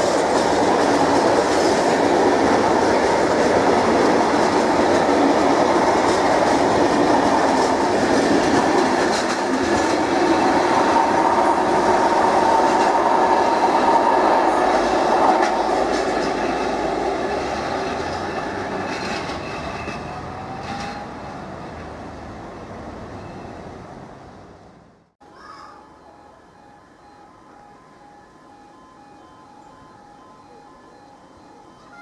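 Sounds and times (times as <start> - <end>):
train wheels clacking over rail joints: 0.0 - 21.2.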